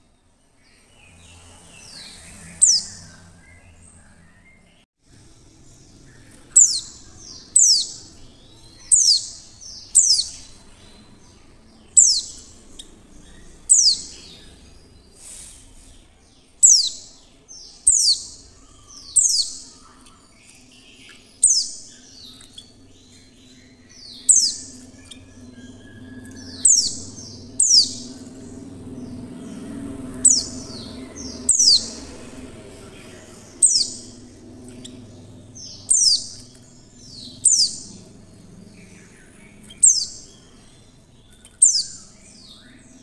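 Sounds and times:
bird high sharp calls: 6.2s - 16.0s, 16.6s - 38.1s.

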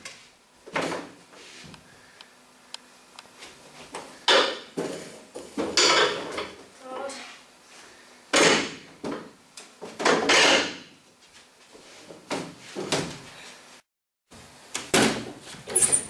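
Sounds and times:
chairs knocking together: 8.3s - 10.9s.

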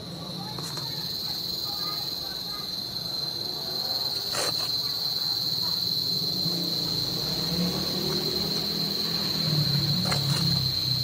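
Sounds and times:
high-pitched insect trill: 0.0s - 11.0s
trowel scraping wet cement: 4.2s - 4.8s.

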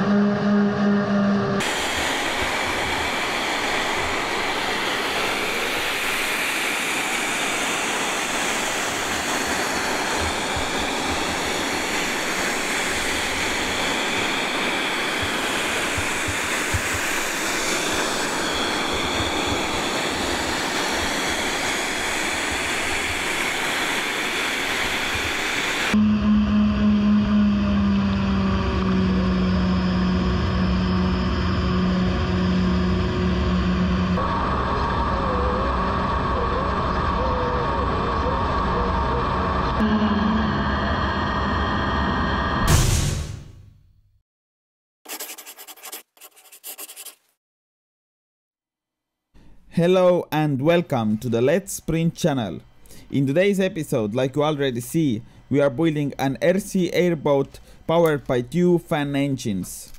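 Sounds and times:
motor fan whine: 0.0s - 42.7s
even rushing noise: 1.6s - 43.2s.

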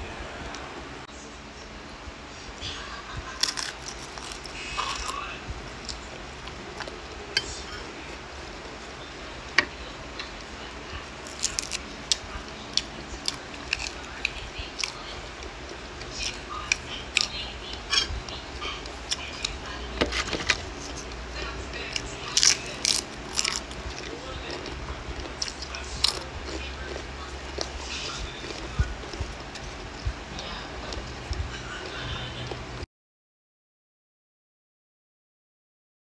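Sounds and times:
lettuce crunching while chewed: 3.3s - 8.9s, 10.1s - 32.6s.

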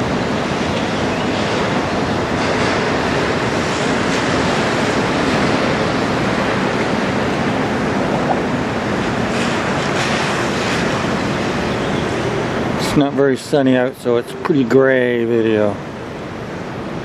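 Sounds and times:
wind buffeting microphone: 0.0s - 12.9s
waves: 0.0s - 17.0s.

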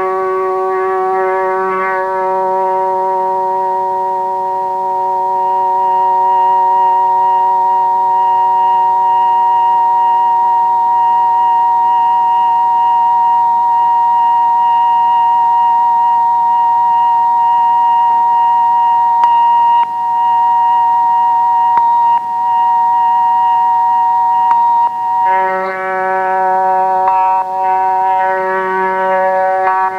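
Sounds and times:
droning chord of held tones: 0.0s - 29.9s
clicks: 21.7s - 22.3s, 24.4s - 29.9s.

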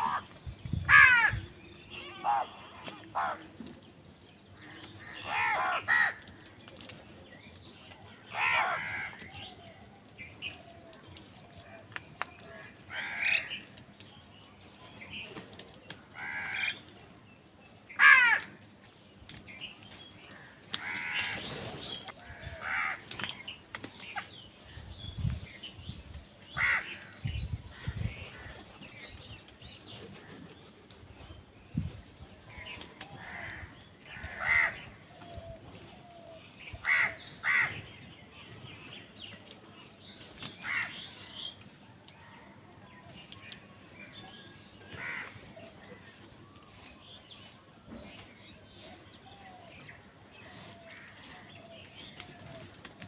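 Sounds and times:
crows cawing: 0.9s - 1.4s, 4.6s - 6.4s, 8.3s - 9.3s, 12.5s - 13.6s, 16.2s - 16.8s, 18.0s - 18.6s, 20.3s - 21.4s, 22.2s - 23.1s, 26.6s - 27.1s, 33.2s - 35.0s, 36.8s - 37.8s, 40.6s - 41.2s, 45.0s - 45.4s.

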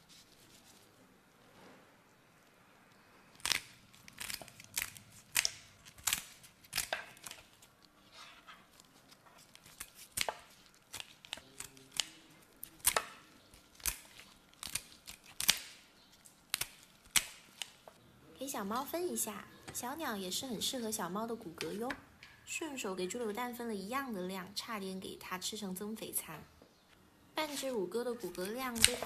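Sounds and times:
kitchen scissors snipping: 3.4s - 7.6s, 9.4s - 15.8s, 16.5s - 17.9s, 28.2s - 29.0s.

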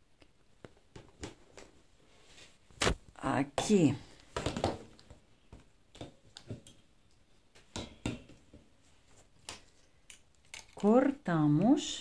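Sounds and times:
fabric and frame clicks and rustles: 9.1s - 11.0s.

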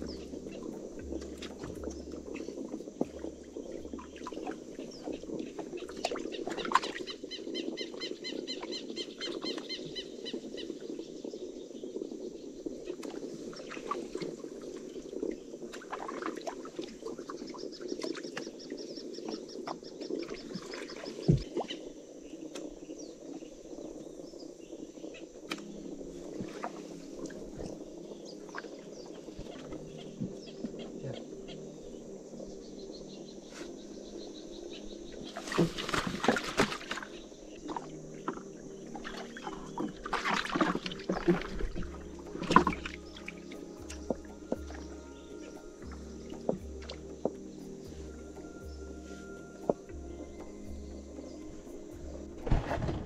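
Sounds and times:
birds calling: 0.0s - 11.2s
steady low background noise: 0.0s - 53.0s.

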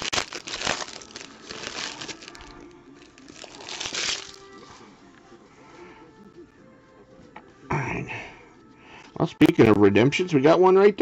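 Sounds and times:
foil wrapper crinkling: 0.0s - 4.6s.

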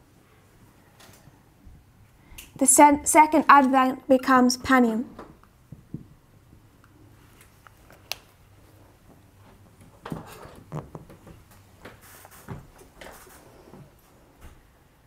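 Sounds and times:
cloth rubbing whiteboard: 11.9s - 14.0s.

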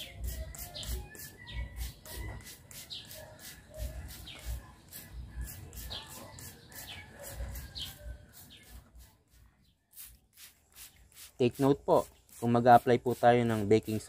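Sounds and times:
birds chirping: 0.0s - 14.0s
hissing spray bottle sprays: 0.0s - 14.0s.

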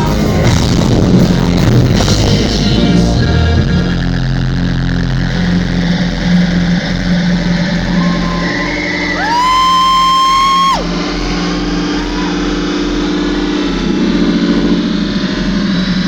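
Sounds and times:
rock band droning chord: 0.0s - 16.0s
loud high sliding note: 7.0s - 16.0s.

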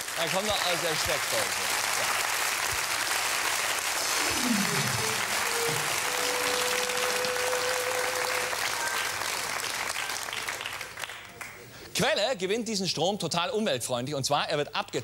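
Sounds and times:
audience applauding: 0.0s - 11.7s.

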